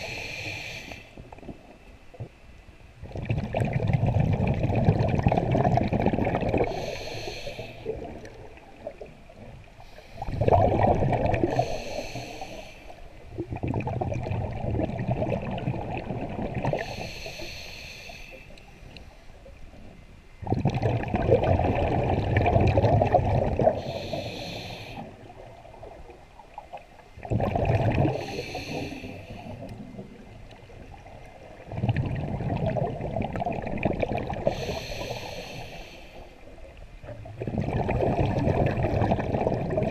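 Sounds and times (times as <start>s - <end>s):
regulator inhale hiss: 0.0s - 1.2s, 6.6s - 8.1s, 9.8s - 10.6s, 11.3s - 13.2s, 16.7s - 19.6s, 23.6s - 25.5s, 28.1s - 29.7s, 34.4s - 36.5s
gurgling exhaled bubbles: 3.0s - 7.0s, 10.2s - 12.0s, 13.2s - 17.0s, 20.4s - 26.1s, 27.2s - 35.2s, 37.0s - 39.9s.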